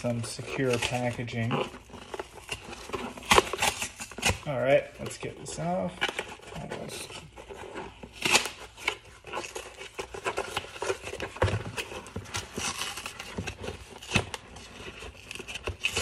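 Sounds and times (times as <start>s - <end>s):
cardboard box ripping: 0.0s - 16.0s.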